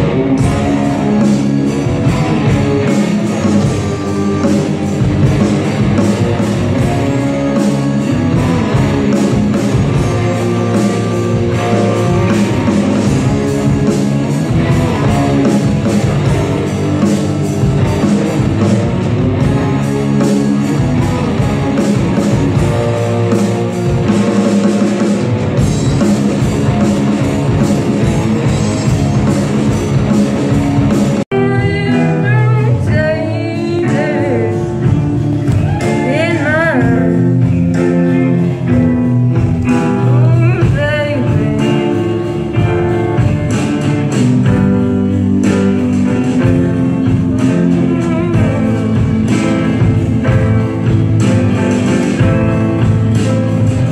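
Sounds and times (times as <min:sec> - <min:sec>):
live rock band playing: 0:00.0 - 0:53.9
person singing: 0:31.3 - 0:38.4, 0:39.6 - 0:42.8.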